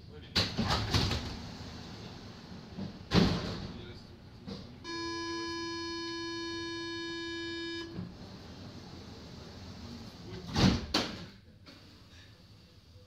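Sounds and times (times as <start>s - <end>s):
sliding doors shutting with bang: 0.4s - 3.8s, 7.9s - 11.9s
door-closing warning tone: 4.8s - 8.4s.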